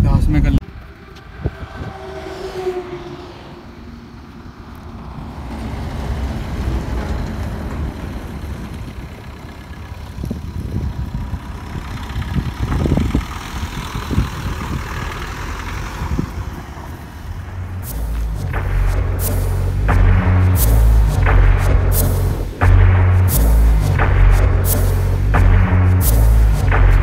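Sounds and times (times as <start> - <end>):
diesel car engine running: 4.2 - 27.0
car knocking over ruts: 5.4 - 27.0.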